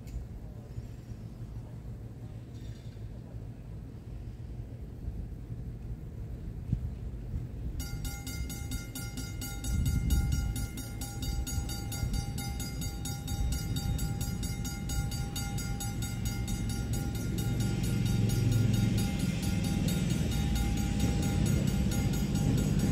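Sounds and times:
railroad crossing bell ringing: 7.8 - 22.9.

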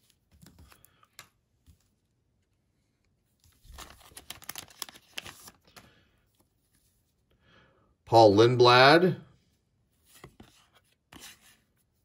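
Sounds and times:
foil wrapper crinkling and tearing: 3.5 - 5.9.

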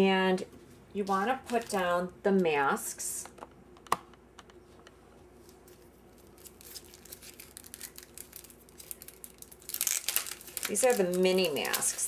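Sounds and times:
plastic crinkling: 5.4 - 12.0.

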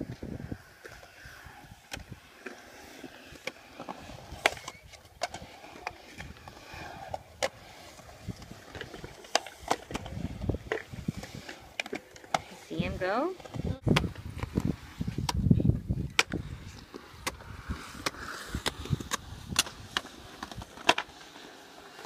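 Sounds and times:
skateboard wheels rolling on concrete: 0.0 - 22.0
skateboard clacks: 13.3 - 22.0.

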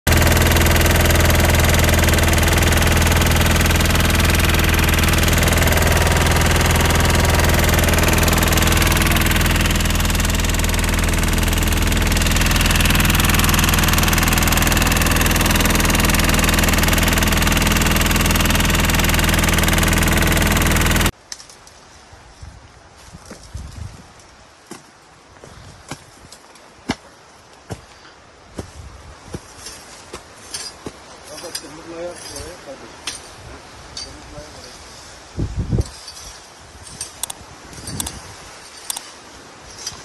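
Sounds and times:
engine running steadily: 0.0 - 21.1.

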